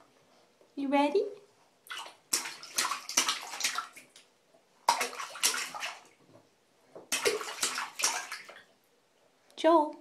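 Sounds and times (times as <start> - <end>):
baby slapping bath water: 1.8 - 6.2, 7.0 - 8.7.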